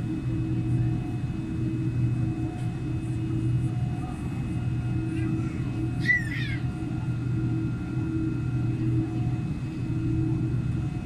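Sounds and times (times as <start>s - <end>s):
aircraft cabin mechanical hum: 0.0s - 11.0s.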